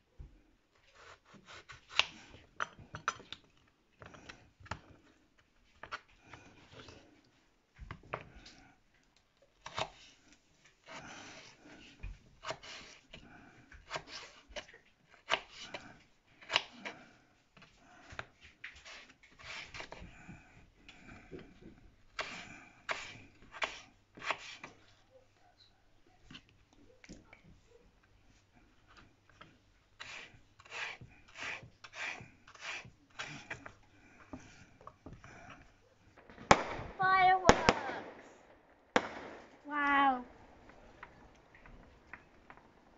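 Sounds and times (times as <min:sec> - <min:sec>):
knife cutting on wooden board: 0:00.9 - 0:02.4, 0:12.4 - 0:13.1, 0:13.8 - 0:17.0, 0:22.2 - 0:24.8, 0:30.0 - 0:34.6.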